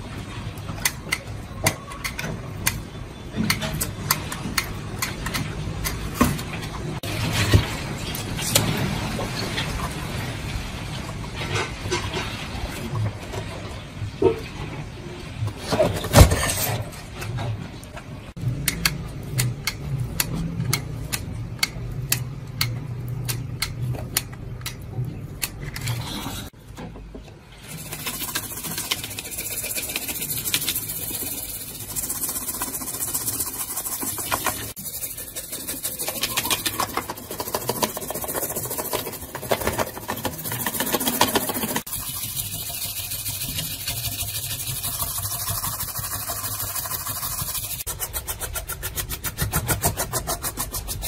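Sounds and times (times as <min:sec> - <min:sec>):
brush scrubbing circuit board: 0:27.7 - 0:51.0.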